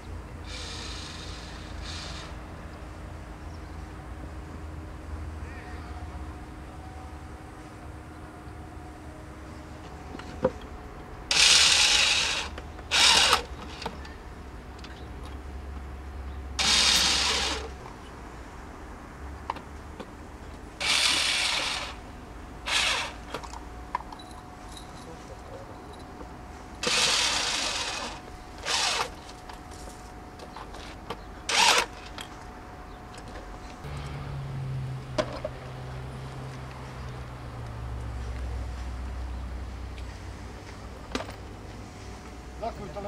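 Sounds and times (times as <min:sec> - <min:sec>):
power drill bursts: 0:00.5 - 0:02.3, 0:11.3 - 0:13.9, 0:16.6 - 0:17.7, 0:20.8 - 0:22.0, 0:22.7 - 0:23.2, 0:26.8 - 0:29.2, 0:31.5 - 0:32.1
low steady hum: 0:02.4 - 0:43.0.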